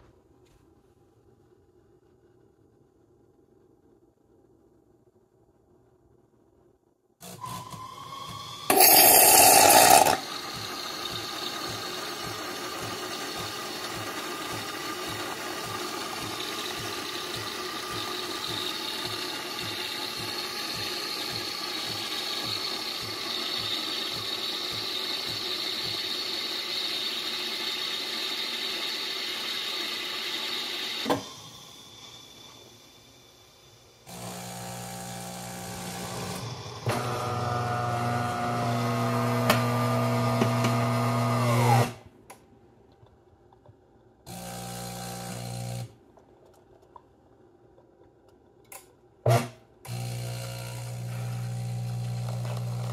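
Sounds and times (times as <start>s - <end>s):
espresso machine frothing milk: 7.4s - 41.9s, 49.9s - 52.9s.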